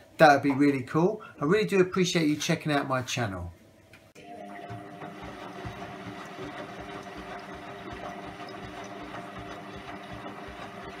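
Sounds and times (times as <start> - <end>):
washing machine motor hum: 4.2 - 11.0.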